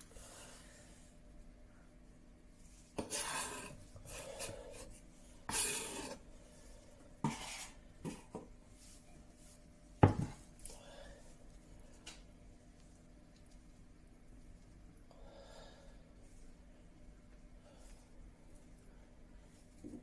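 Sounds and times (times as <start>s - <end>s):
scraping and rubbing on countertop: 2.6s - 10.5s.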